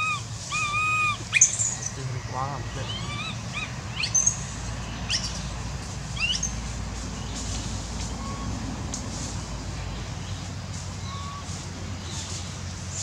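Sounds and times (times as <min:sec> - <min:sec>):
high-pitched chirping calls: 0:00.0 - 0:02.0, 0:02.7 - 0:05.5, 0:06.1 - 0:06.6
steady low rumble: 0:00.0 - 0:13.0.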